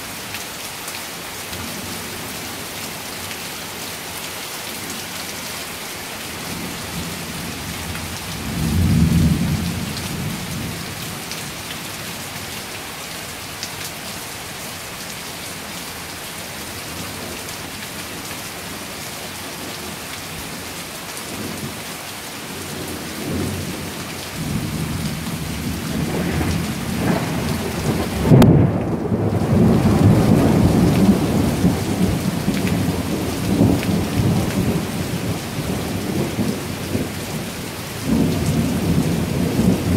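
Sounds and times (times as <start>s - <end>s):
heavy rain falling: 0.0s - 39.9s
thunder rumbling: 7.0s - 10.8s, 24.4s - 37.4s, 38.0s - 39.9s
sharp thunder crack: 26.0s - 31.3s.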